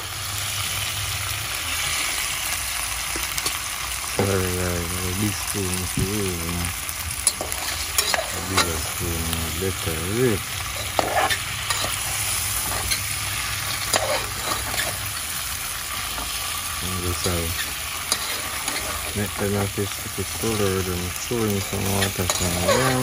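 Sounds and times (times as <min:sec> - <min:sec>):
chicken feet sizzling in a pot: 0:00.0 - 0:23.0
metal spoon scraping a pot: 0:07.2 - 0:09.0, 0:10.6 - 0:15.4, 0:17.1 - 0:19.6, 0:21.6 - 0:23.0.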